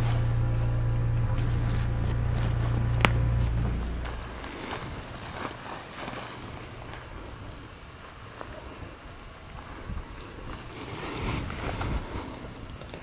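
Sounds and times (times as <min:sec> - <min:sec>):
footsteps in dry grass: 0:00.0 - 0:13.0
insects trilling: 0:00.0 - 0:13.0
wind rumble on microphone: 0:00.0 - 0:13.0.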